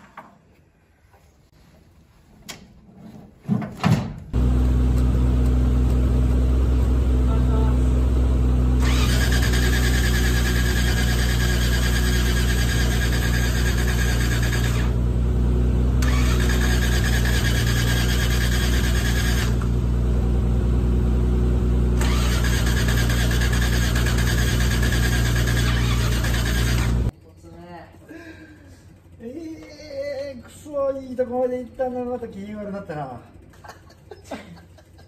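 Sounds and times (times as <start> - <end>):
starter motor cranking engine: 8.7 - 15.2, 16.0 - 19.9, 21.9 - 27.1.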